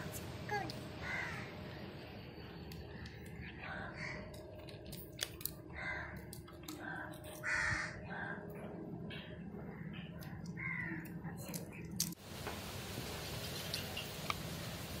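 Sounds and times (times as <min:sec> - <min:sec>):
crows cawing: 0:01.0 - 0:01.6, 0:03.7 - 0:04.4, 0:05.7 - 0:08.7, 0:10.6 - 0:11.1.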